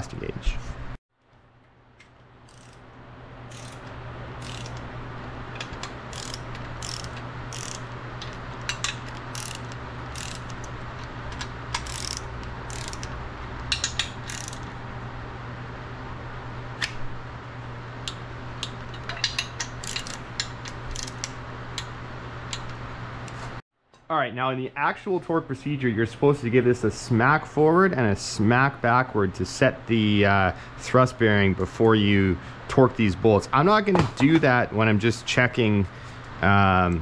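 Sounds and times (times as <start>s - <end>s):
torque wrench ratcheting: 2.4s - 2.8s, 3.5s - 4.8s, 6.1s - 7.9s, 8.7s - 10.7s, 11.7s - 14.7s, 19.3s - 21.3s.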